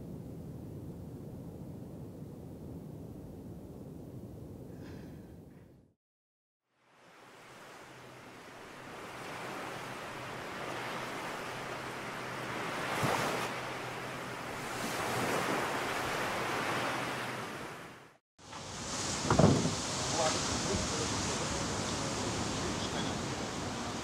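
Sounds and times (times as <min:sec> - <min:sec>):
ocean waves breaking: 0:06.8 - 0:24.0.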